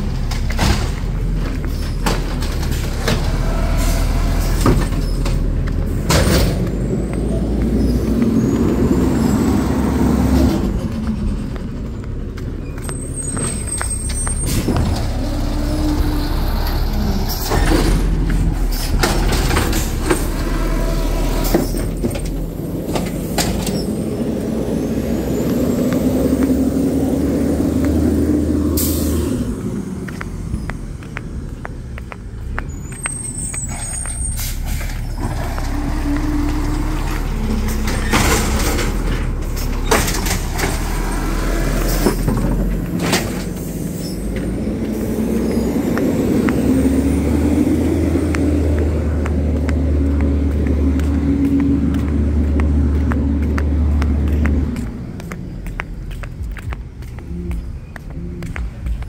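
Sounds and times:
garbage truck engine under load: 0.0 - 56.3.

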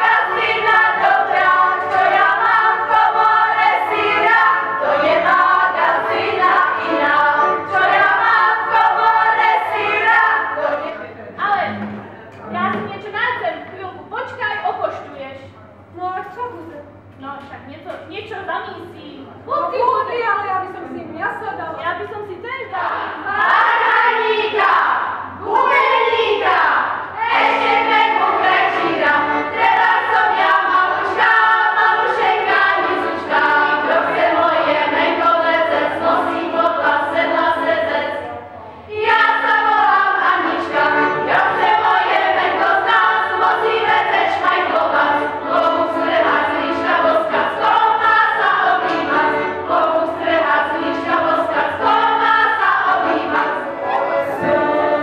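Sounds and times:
women singing folk song: 0.0 - 11.0, 22.8 - 38.2, 38.9 - 55.0.

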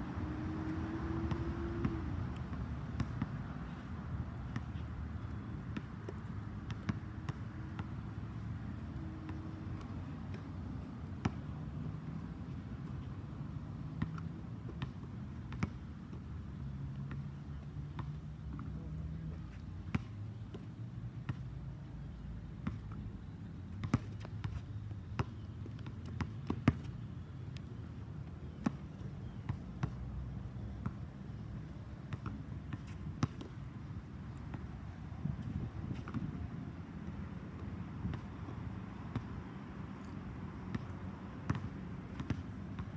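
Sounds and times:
basketball bouncing on hard court: 25.2 - 26.9, 32.1 - 33.5, 41.5 - 42.9.

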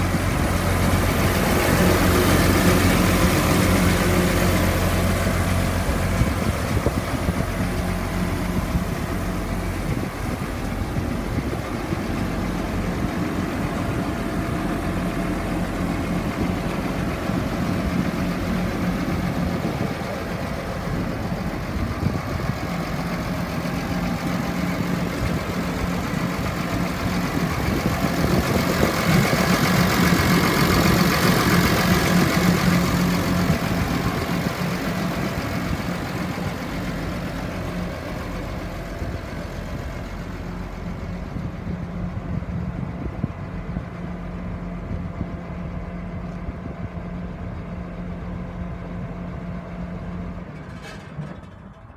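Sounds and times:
diesel tractor engine idling: 0.0 - 51.9.

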